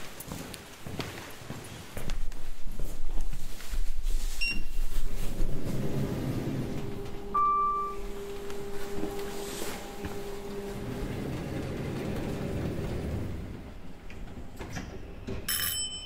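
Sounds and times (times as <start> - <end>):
lift running with rumble: 4.8 - 15.3
short electronic beep: 7.4 - 8.1.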